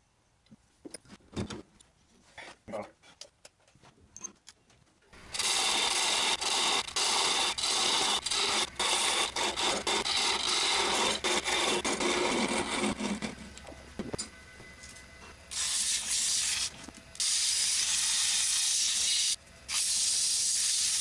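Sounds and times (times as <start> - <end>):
lathe tool scraping wood: 5.3 - 13.6.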